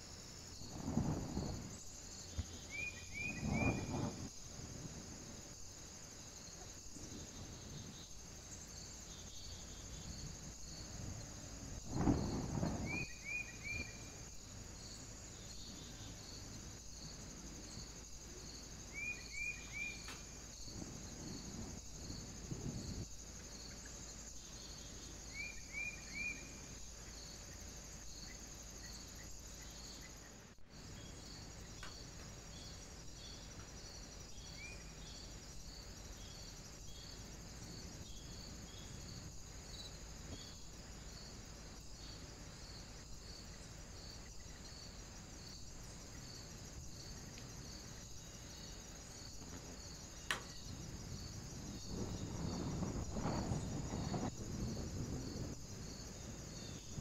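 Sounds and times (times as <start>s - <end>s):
steady high hiss: 0.0s - 57.0s
sharp click: 50.3s - 50.6s.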